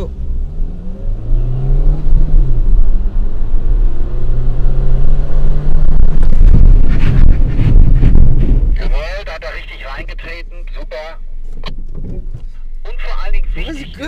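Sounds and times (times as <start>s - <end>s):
car engine accelerating: 0.0s - 14.0s
road rumble: 0.0s - 14.0s.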